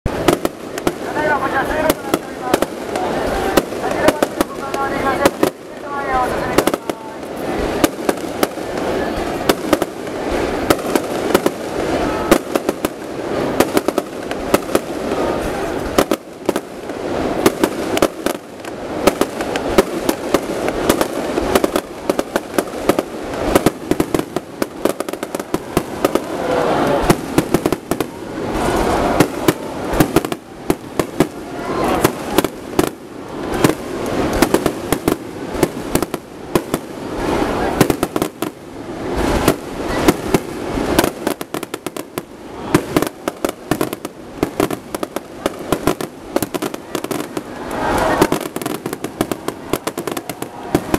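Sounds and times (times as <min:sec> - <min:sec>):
firework shells bursting: 0:00.0 - 0:38.6
firework crackling: 0:00.0 - 0:50.9.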